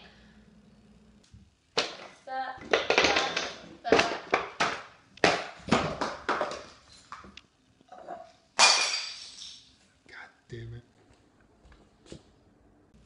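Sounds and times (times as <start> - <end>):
household items knocking: 1.8 - 6.7.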